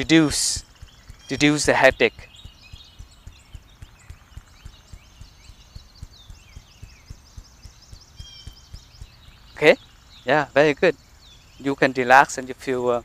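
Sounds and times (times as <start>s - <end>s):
muffled hand clapping thumps: 0.0s - 9.8s
birds chirping: 0.0s - 13.0s.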